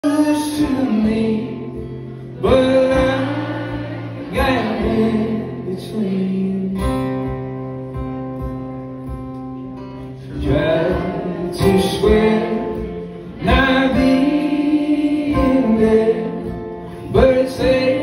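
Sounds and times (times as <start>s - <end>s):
man singing: 0.0s - 7.7s, 10.1s - 18.0s
acoustic guitar strumming: 0.0s - 18.0s.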